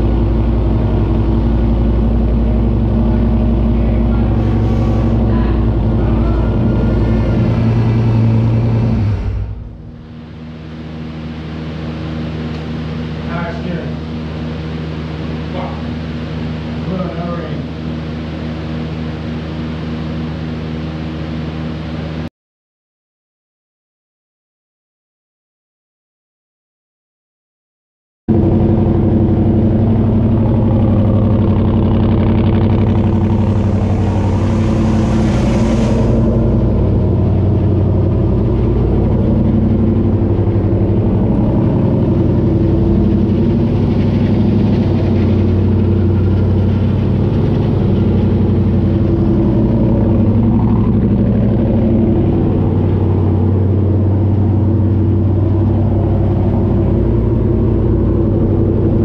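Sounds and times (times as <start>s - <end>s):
race car engine idling: 0.0s - 20.1s, 28.3s - 59.0s
hiss: 33.5s - 36.5s.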